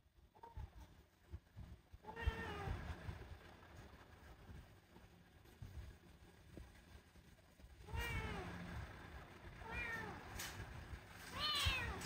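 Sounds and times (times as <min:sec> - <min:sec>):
kitten meowing: 0:07.9 - 0:08.4, 0:11.3 - 0:12.0.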